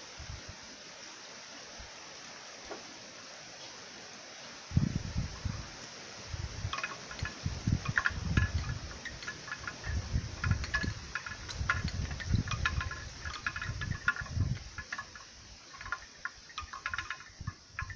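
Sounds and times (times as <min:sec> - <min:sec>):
wind gusts rumbling on microphone: 0:00.0 - 0:00.7, 0:04.7 - 0:17.9.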